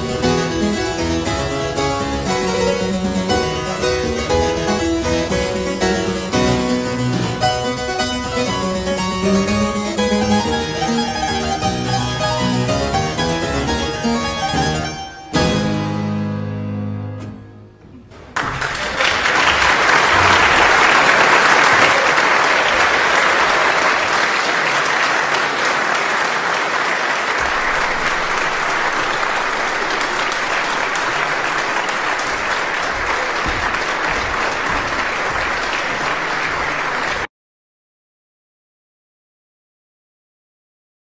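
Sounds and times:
harpsichord chord: 0.0 - 17.8
audience applauding: 18.2 - 37.3.

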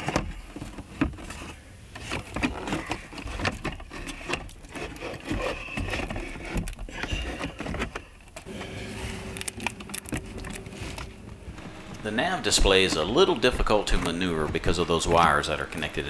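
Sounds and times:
plastic knocks clicks and scrapes: 0.0 - 8.5.

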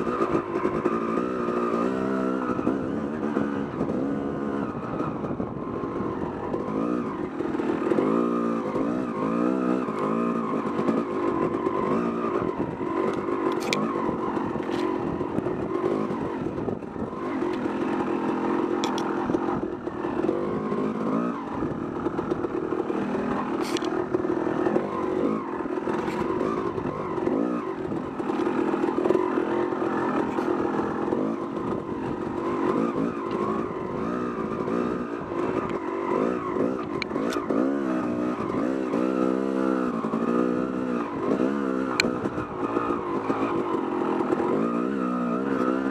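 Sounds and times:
dirt bike engine revving: 0.0 - 45.9
sharp ticks: 18.6 - 19.5, 41.3 - 42.9.

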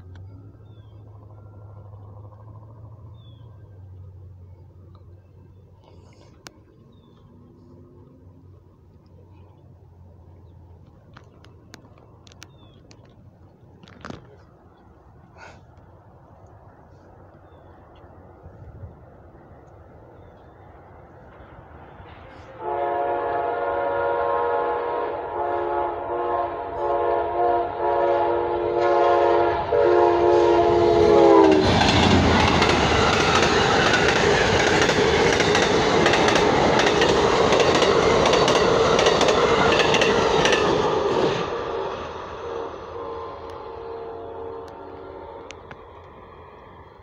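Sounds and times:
train rushing past: 0.0 - 4.5, 18.2 - 47.0
train wheels clicking on rail joints: 0.0 - 7.9, 30.6 - 42.5
train horn blasts: 22.3 - 32.2, 40.4 - 46.0.

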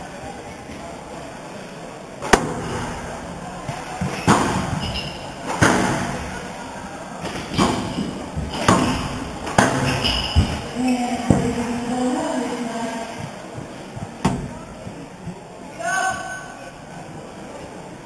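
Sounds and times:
racket hitting squash ball: 2.2 - 3.0, 4.0 - 6.4, 7.2 - 11.5
ball hitting walls: 2.2 - 6.4, 7.2 - 11.6, 13.2 - 15.4
shoe squeak on wooden floor: 4.7 - 5.4, 9.8 - 10.7.

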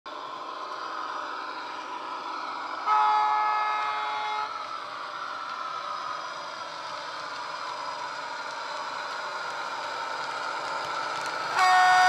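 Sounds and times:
model locomotive diesel engine sound: 0.1 - 12.0
locomotive horn: 2.8 - 4.6, 11.6 - 12.0.

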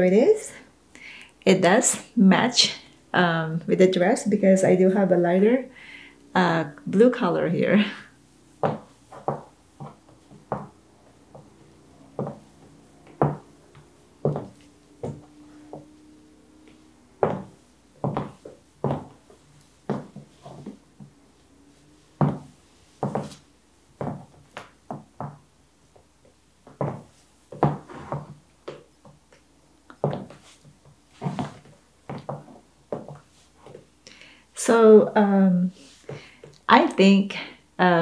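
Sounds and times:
heels clicking on laminate floor: 8.6 - 21.2, 22.2 - 33.9.

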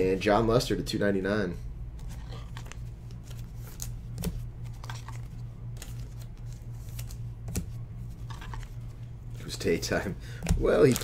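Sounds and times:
steady low hum: 0.0 - 11.0
cards clicking and rustling: 2.0 - 9.5, 10.4 - 11.0.

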